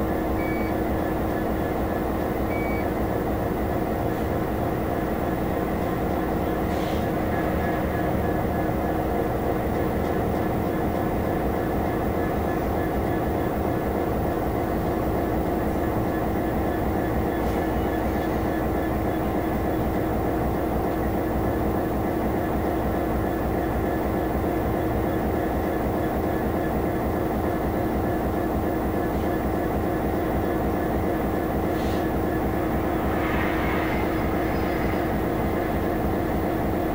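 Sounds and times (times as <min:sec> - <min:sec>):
diesel locomotive engine drone: 0:00.0 - 0:36.9
thin high whine: 0:32.0 - 0:36.9.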